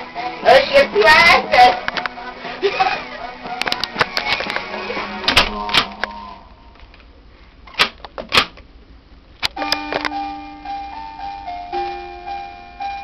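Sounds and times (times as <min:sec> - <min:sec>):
sharp clicks and knocks: 0:07.7 - 0:08.6
simple tune of long notes: 0:09.6 - 0:13.0.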